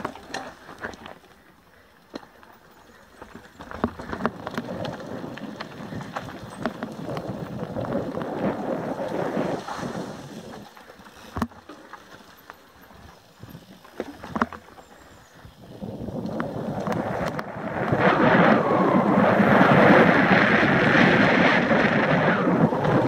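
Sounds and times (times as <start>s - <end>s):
bike tyres rattling over stones: 0.0s - 23.0s
wind buffeting microphone: 3.8s - 10.7s, 15.3s - 23.0s.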